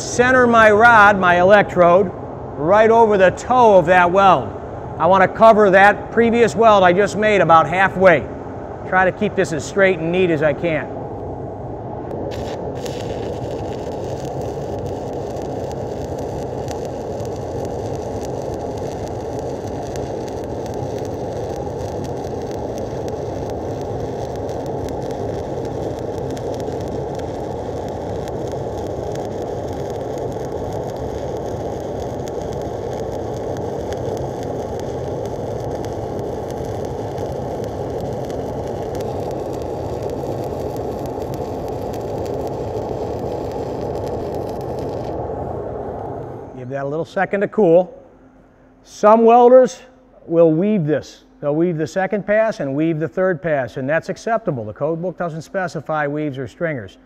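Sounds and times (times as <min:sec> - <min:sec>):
welding arc sizzling: 0:12.1 - 0:45.4.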